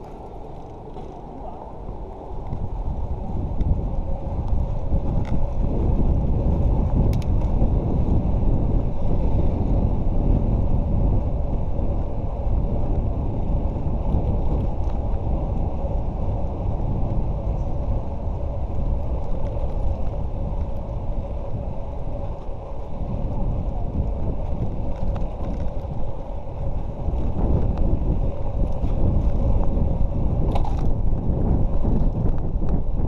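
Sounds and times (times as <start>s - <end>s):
road noise: 0.0s - 33.0s
wind buffeting microphone: 0.0s - 33.0s.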